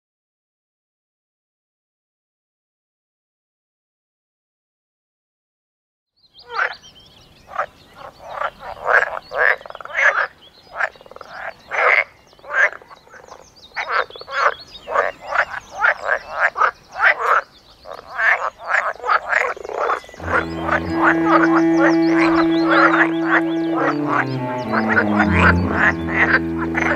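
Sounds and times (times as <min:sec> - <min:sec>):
frogs croaking: 0:06.4 - 0:06.8, 0:07.5 - 0:26.9.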